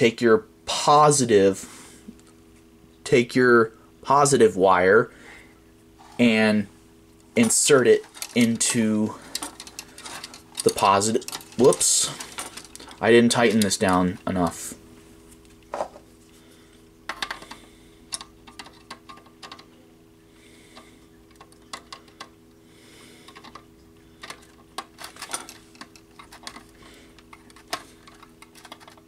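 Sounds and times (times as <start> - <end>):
faint steady hum: 0.0 - 29.0.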